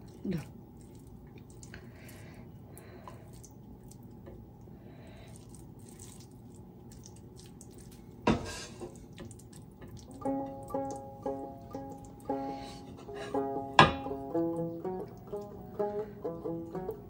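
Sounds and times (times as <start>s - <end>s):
wet squishing of rice mixed by hand: 0.0s - 13.0s.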